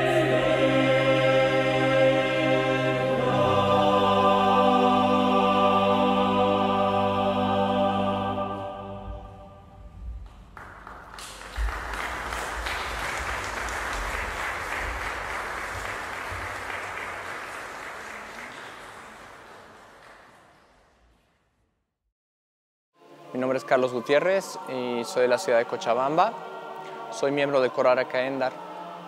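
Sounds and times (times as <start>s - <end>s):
choir singing chord: 0.0s - 9.9s, 23.0s - 29.0s
audience applauding: 10.3s - 20.9s.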